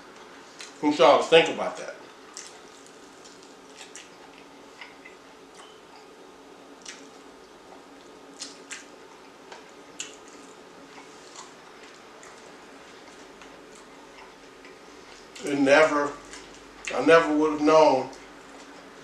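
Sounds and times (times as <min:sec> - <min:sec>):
low steady hum: 0:00.0 - 0:19.0
chewing with wet smacks: 0:02.0 - 0:06.1, 0:06.8 - 0:15.5, 0:16.2 - 0:17.0.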